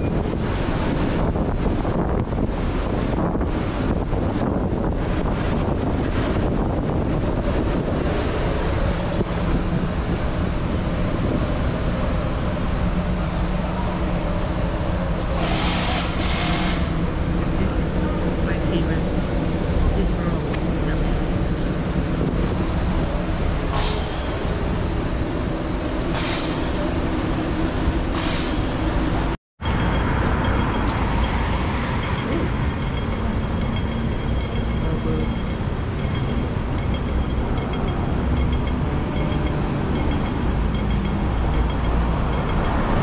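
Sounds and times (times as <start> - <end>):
wind on microphone: 0.0 - 12.1
city street traffic: 0.0 - 43.0
low engine hum: 0.0 - 43.0.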